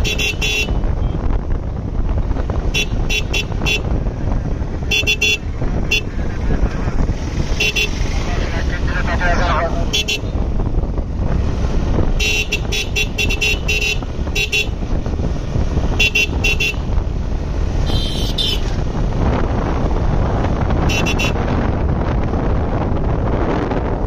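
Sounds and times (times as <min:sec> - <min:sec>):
motorcycle engine rumble: 0:00.0 - 0:24.0
horn beeping: 0:04.9 - 0:06.8, 0:07.6 - 0:10.4, 0:17.8 - 0:18.7, 0:20.8 - 0:21.4.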